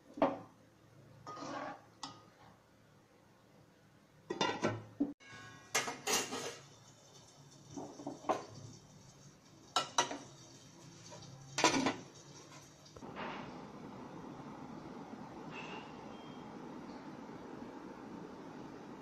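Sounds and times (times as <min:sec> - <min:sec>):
metal ladle scraping in pot: 0:01.2 - 0:01.9, 0:05.2 - 0:06.7
steel lid clanking on pot: 0:04.3 - 0:06.6.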